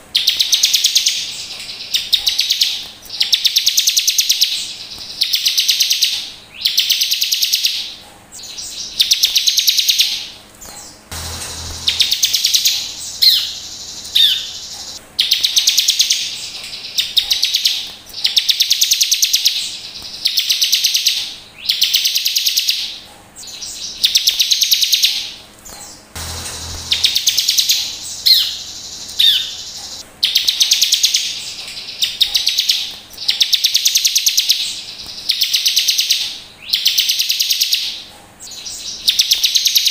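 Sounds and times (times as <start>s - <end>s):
bird singing buzzy trills: 0.0s - 39.9s
sharp high bird chirps: 8.4s - 39.9s.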